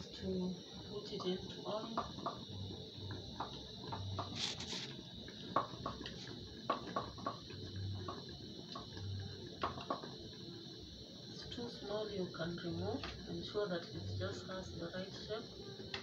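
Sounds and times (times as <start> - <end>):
knife scraping board: 4.4 - 4.9.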